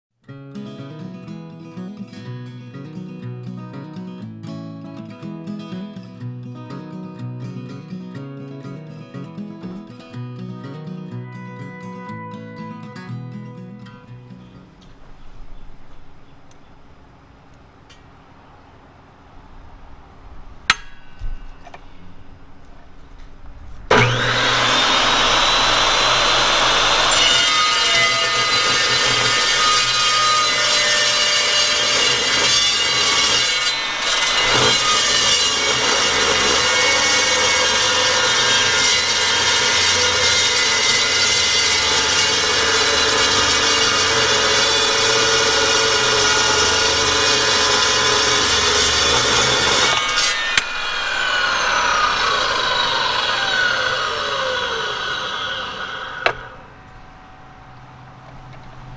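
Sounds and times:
metal saw cutting steel bar: 23.9 - 56.6
saw blade spinning down whine: 23.9 - 56.8.

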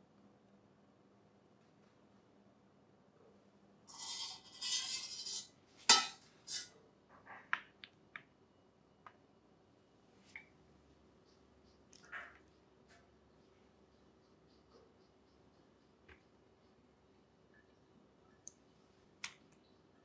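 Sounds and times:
kitchenware scraping and rustling: 3.9 - 7.5.

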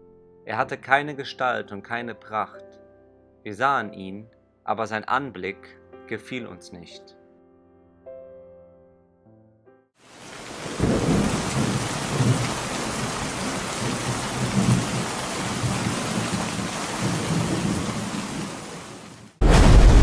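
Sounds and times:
heavy rain: 10.0 - 20.0
rolling thunder: 10.6 - 18.6, 19.4 - 20.0.

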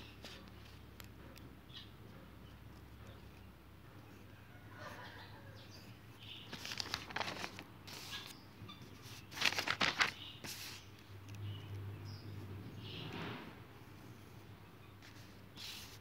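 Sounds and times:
paper rustling and crinkling: 6.4 - 11.4, 15.0 - 16.0.

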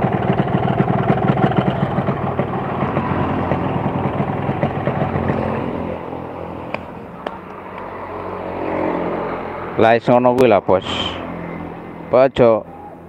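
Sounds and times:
two-stroke engine idling: 0.0 - 7.9.

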